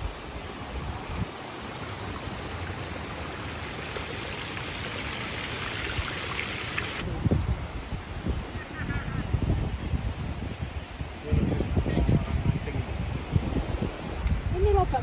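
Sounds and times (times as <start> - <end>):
wind rumble on microphone: 0.0 - 2.8, 6.9 - 15.0
running water: 0.0 - 15.0.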